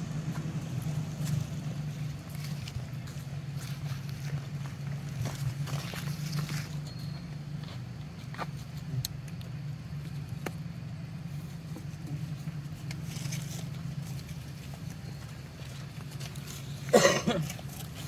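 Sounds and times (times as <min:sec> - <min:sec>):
low motor drone: 0:00.0 - 0:08.2.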